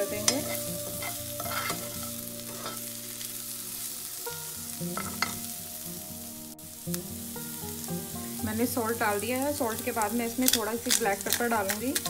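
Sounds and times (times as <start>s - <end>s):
metal spoon scraping a pan: 0.0s - 3.2s, 4.9s - 5.5s, 9.9s - 12.0s
butter sizzling in a frying pan: 0.0s - 12.0s.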